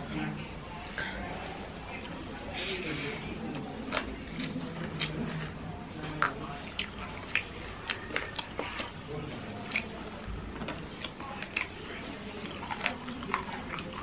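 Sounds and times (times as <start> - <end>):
wet chewing and lip smacks: 3.5 - 14.0.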